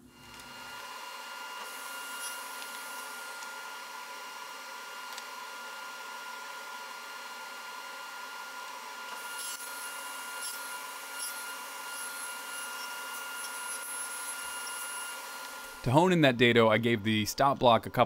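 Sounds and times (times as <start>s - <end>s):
table saw whining: 0.0s - 17.9s.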